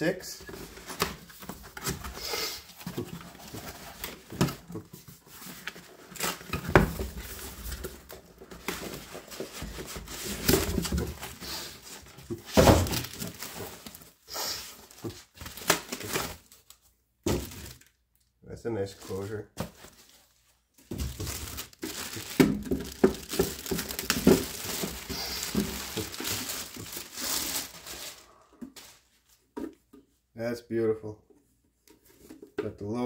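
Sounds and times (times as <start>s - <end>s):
cardboard and plastic rustling: 0.4s - 18.0s, 18.8s - 29.9s.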